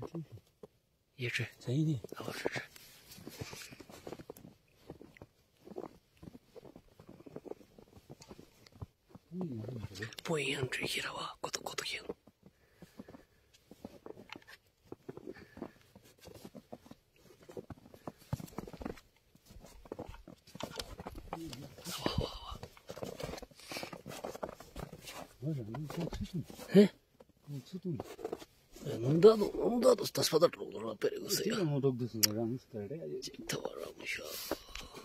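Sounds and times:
footsteps crunching in snow: 2.1 - 9.2, 12.7 - 26.8
clothing rustling: 12.5 - 26.8.

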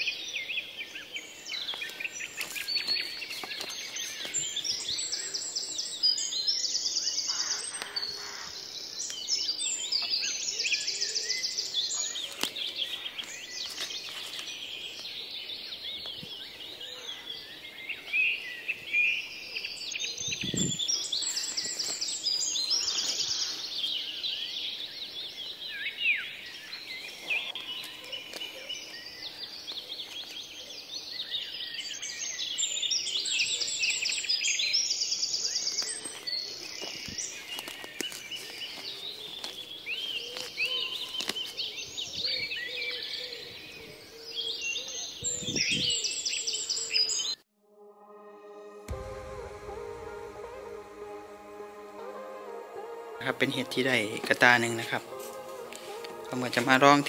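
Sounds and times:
birds chirping: 0.0 - 47.4, 48.9 - 57.0
rustling of dry leaves: 0.0 - 47.4, 51.9 - 57.0
low bump: 48.8 - 52.8.

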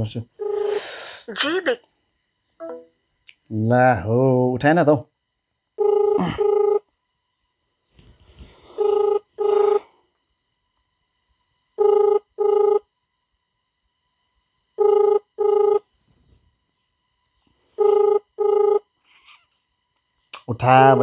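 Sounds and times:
phone ringback tone: 0.4 - 0.8, 5.8 - 6.8, 8.7 - 9.9, 11.8 - 12.9, 14.8 - 15.9, 17.8 - 18.9.

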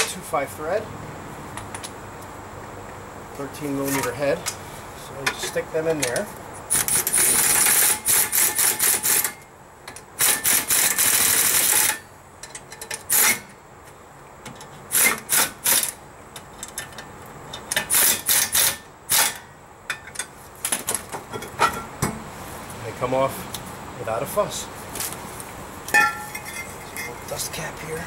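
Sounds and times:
pneumatic air tool bursts: 6.7 - 9.4, 10.2 - 12.0, 13.1 - 13.5, 14.9 - 16.0, 17.8 - 19.4.

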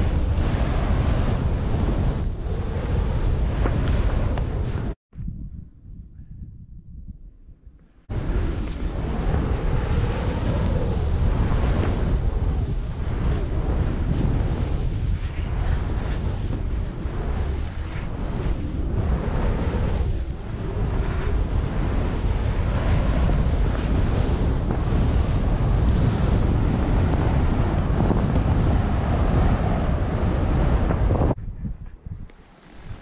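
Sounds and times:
wind rushing over microphone: 0.0 - 33.0.

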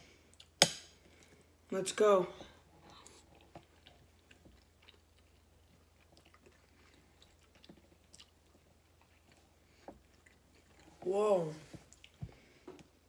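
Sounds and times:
faint chewing: 2.4 - 13.0.

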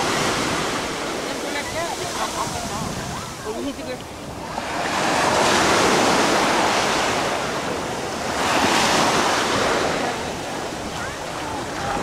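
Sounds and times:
surf washing up a sandy shore: 0.0 - 12.0.

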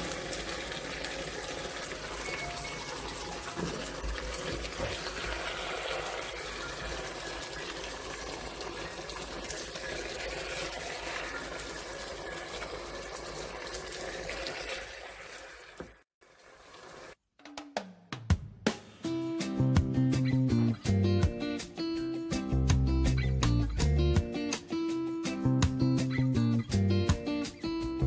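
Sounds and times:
sauce bubbling and sizzling in pan: 0.0 - 17.2.

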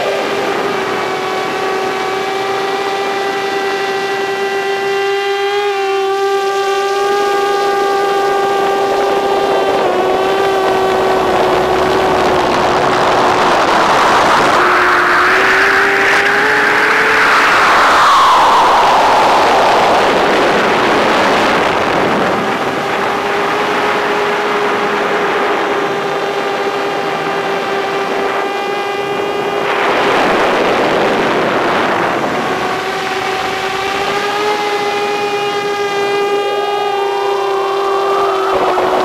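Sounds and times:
drone motors whining: 0.0 - 39.0
rushing noise: 9.4 - 27.4.

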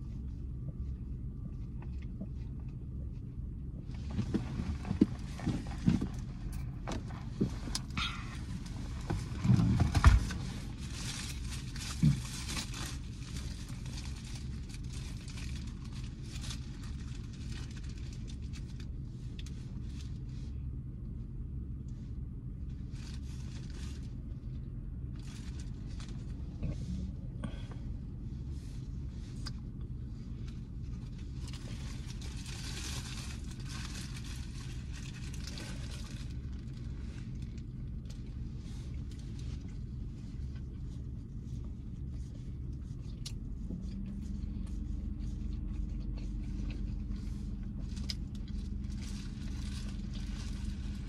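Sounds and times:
idling car hum: 0.0 - 51.0
paper wrapper crinkling: 10.7 - 18.8, 31.4 - 38.1
biting and chewing: 42.1 - 51.0.

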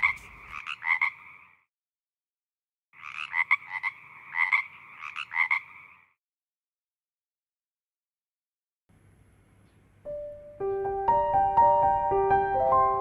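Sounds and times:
frog croaking: 0.0 - 1.7, 3.0 - 6.2.

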